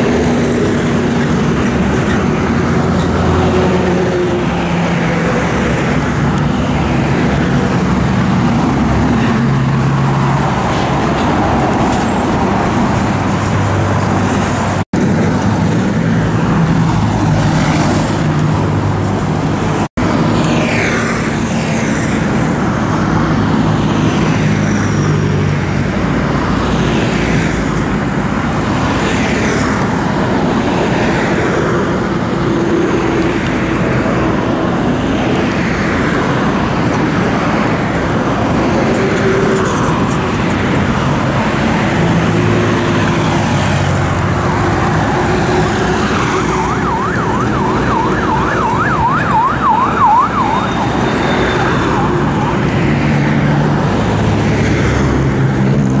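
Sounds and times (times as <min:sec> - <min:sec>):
vehicles passing by: 0:00.0 - 0:56.0
siren yelping: 0:45.1 - 0:52.9.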